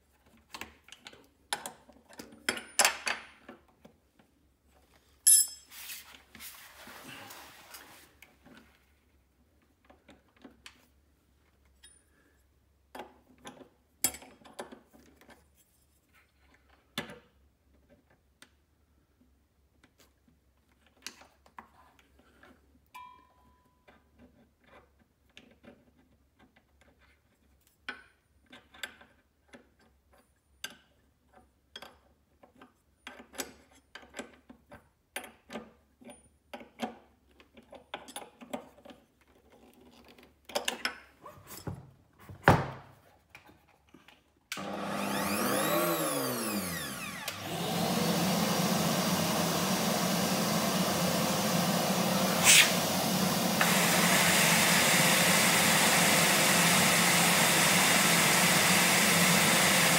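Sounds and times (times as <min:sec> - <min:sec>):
router motor spinning: 0:44.6 - 0:59.9.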